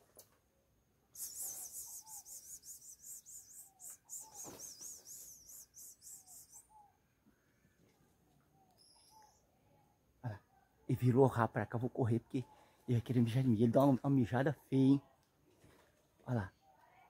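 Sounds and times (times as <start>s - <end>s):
faint lower short calls: 1.1s - 7.7s
rapid high-pitched animal chirps: 1.2s - 6.9s.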